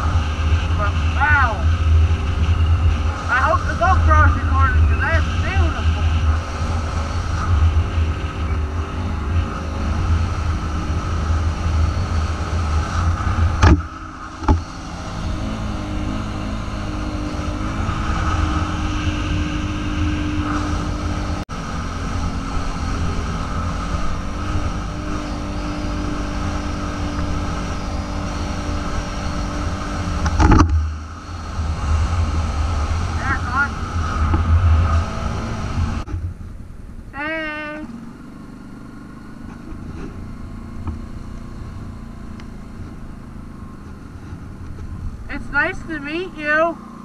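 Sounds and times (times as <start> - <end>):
atv engine running: 0.0 - 47.0
sharp knocks: 13.6 - 14.6.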